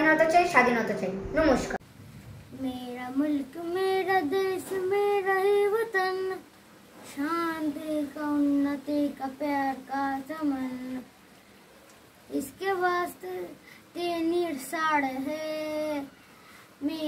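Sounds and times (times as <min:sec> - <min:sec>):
boy singing unaccompanied: 0:02.5 - 0:11.1, 0:12.3 - 0:16.2, 0:16.8 - 0:17.0.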